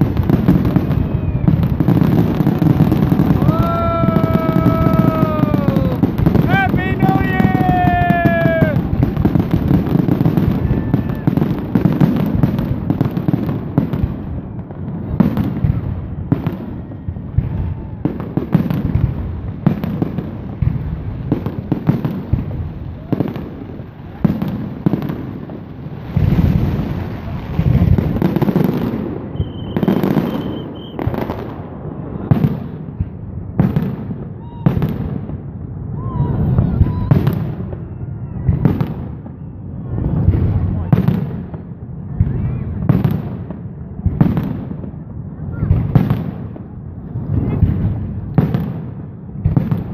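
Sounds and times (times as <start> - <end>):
fireworks crackling: 0.0 - 49.9
high firework whistle: 0.2 - 12.2, 26.1 - 32.8, 35.9 - 41.1.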